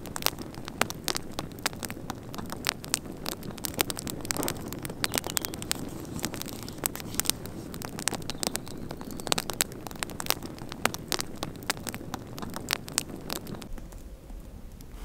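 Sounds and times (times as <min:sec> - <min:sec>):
campfire crackling and popping: 0:00.0 - 0:15.0.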